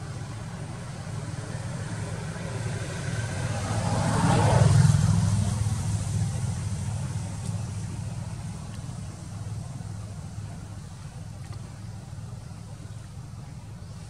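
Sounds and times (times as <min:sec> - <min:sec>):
vehicle passing: 0:01.3 - 0:09.6.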